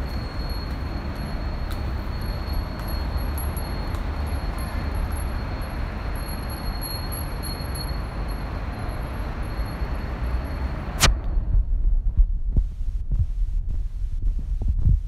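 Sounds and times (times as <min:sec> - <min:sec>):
wind bells ringing: 0:00.0 - 0:11.0
steady low rumble: 0:10.9 - 0:15.0.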